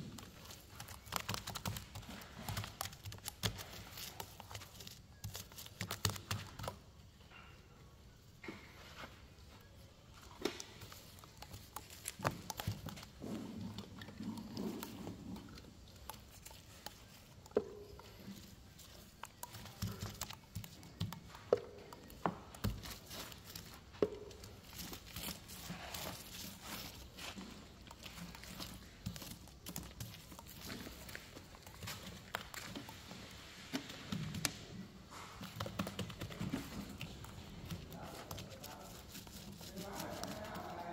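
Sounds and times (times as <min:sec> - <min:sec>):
jug and brush knocks and taps: 0:10.4 - 0:34.6, 0:35.4 - 0:40.9.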